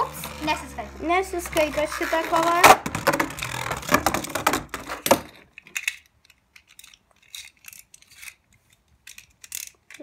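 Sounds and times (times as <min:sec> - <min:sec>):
spinning top rattling on plastic: 0:00.0 - 0:10.0
plastic clicks: 0:02.4 - 0:10.0.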